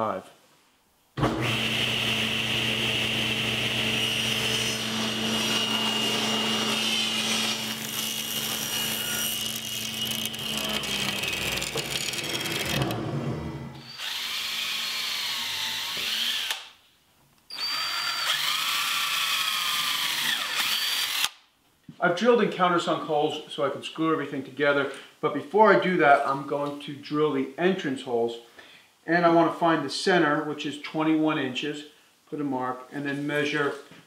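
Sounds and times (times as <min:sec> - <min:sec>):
cordless drill drilling: 0:01.2 - 0:13.0, 0:13.8 - 0:16.7, 0:17.5 - 0:21.4
table saw cutting wood: 0:01.2 - 0:16.6
table saw spinning down: 0:01.2 - 0:16.6.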